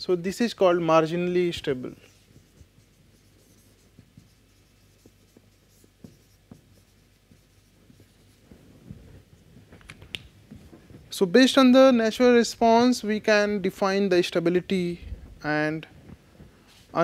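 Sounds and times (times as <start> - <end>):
low steady hum: 0.0 - 17.0
marker scratching on whiteboard: 1.3 - 9.5
light marker taps: 2.3 - 8.2.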